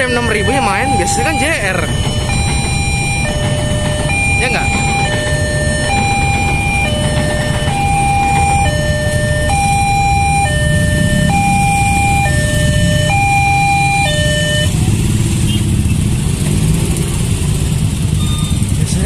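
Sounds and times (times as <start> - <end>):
level crossing two-tone alarm: 0.0 - 15.0
motorcycle engines idling: 0.0 - 19.0.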